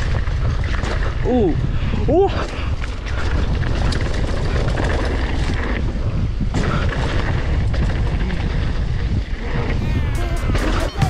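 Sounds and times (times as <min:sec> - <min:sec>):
bike clicks and rattles: 0:00.0 - 0:09.8
wind buffeting microphone: 0:00.0 - 0:11.0
tyres rumbling on dirt: 0:03.0 - 0:11.0.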